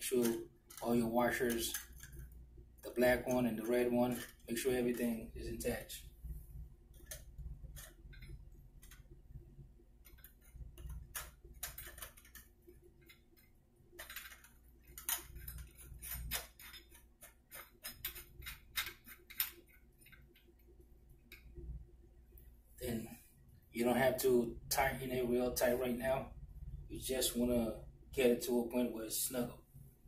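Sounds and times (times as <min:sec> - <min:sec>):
metal nut clicking: 0:01.5 - 0:02.3, 0:10.0 - 0:20.5.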